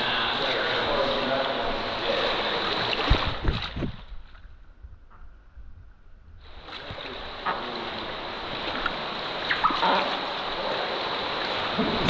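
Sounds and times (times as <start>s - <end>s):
river water rushing: 0.0s - 3.5s, 6.4s - 12.0s
water splashes: 0.0s - 5.0s, 6.4s - 12.0s.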